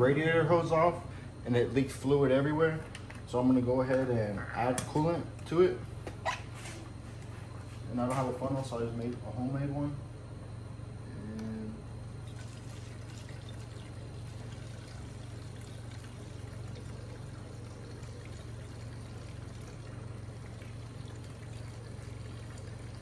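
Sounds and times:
low hum: 0.0 - 23.0
liquid pouring through funnel: 12.2 - 23.0.

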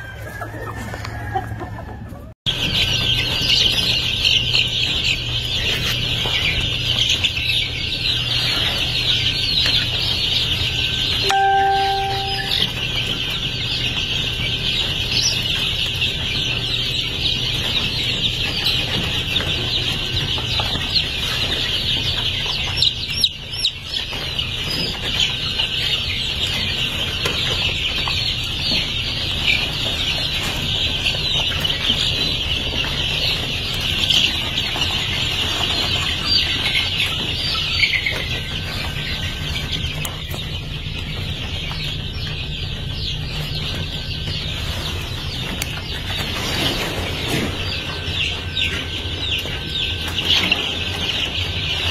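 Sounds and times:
chicks peeping: 0.0 - 51.9
low steady hum: 2.8 - 13.4.

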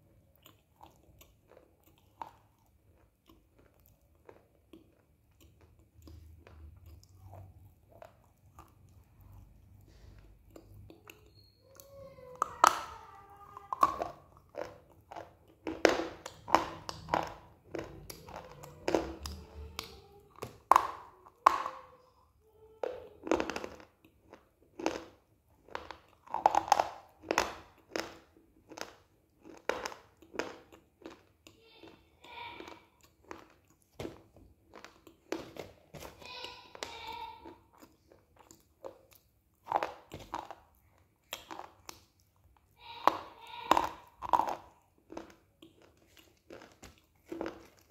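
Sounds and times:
wet chewing: 0.0 - 22.1, 23.0 - 47.9.

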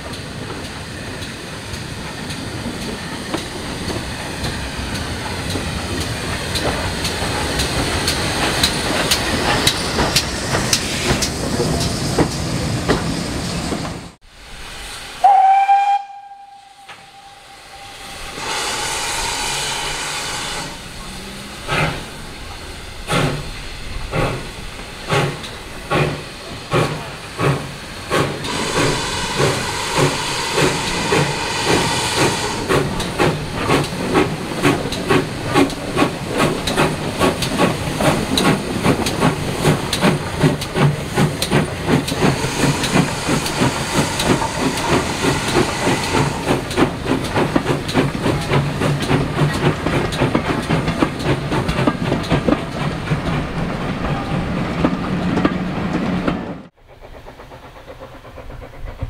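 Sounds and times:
steam hissing: 0.0 - 53.2, 56.7 - 59.0
steam locomotive exhaust beats: 0.0 - 59.0.

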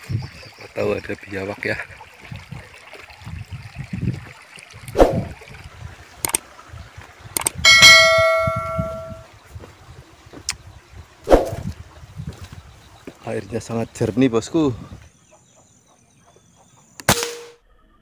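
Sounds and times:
bright bell chime: 7.7 - 9.2.

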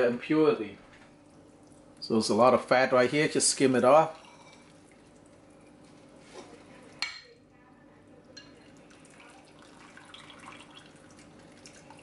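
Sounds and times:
liquid dripping and trickling: 1.2 - 2.0, 4.0 - 5.9, 8.4 - 12.0.

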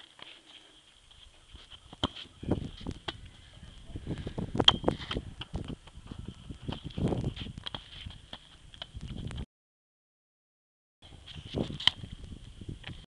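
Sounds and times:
wind buffeting microphone: 2.3 - 9.4, 11.1 - 13.0.

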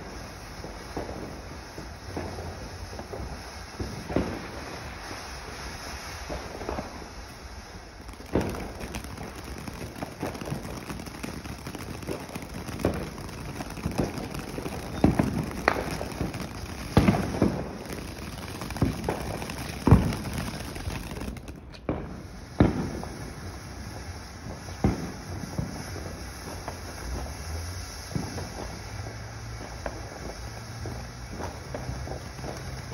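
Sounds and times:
firework pops and cracks: 0.0 - 32.9
firework spraying sparks hiss: 0.0 - 32.9.

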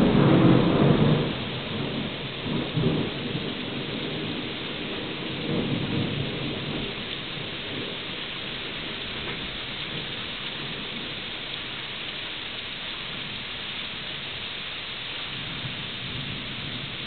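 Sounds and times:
low rumble of thunder: 0.0 - 11.6, 15.3 - 17.0
steady rain falling: 0.0 - 17.0.

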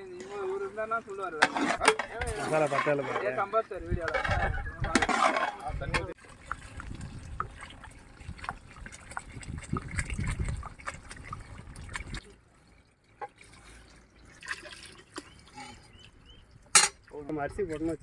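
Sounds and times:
water pouring into liquid: 6.1 - 15.9.

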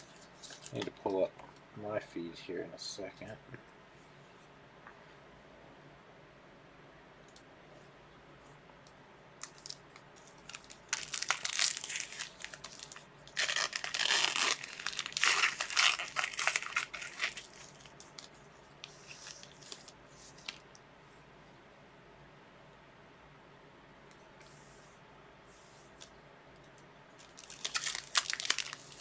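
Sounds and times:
plastic packaging crackling: 0.0 - 1.3, 9.4 - 20.7, 27.2 - 29.0.

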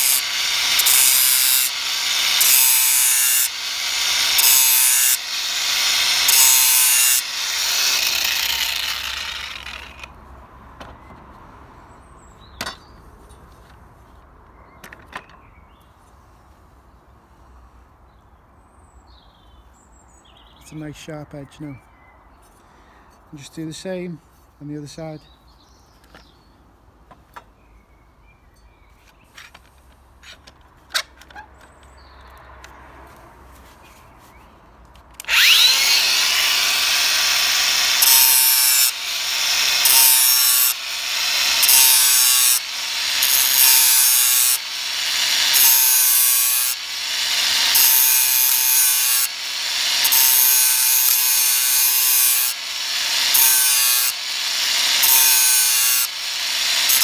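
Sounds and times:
angle grinder grinding metal: 0.0 - 10.1, 35.2 - 57.0.

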